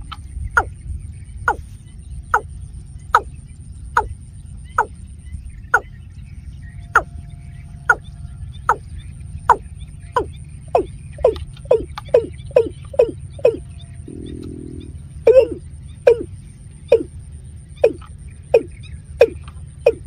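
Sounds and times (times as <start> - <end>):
low steady rumble: 0.0 - 20.0
bird calling falling notes: 10.2 - 16.3, 16.9 - 17.1, 17.8 - 20.0.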